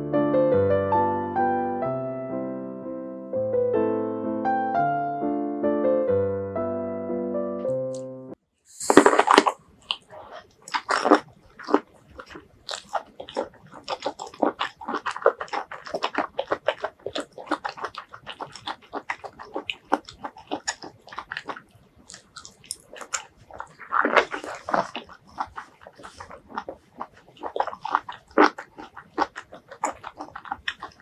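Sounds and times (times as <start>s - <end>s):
crisp bite into vegetables: 8.7s - 31.0s
wet chewing: 8.7s - 31.0s.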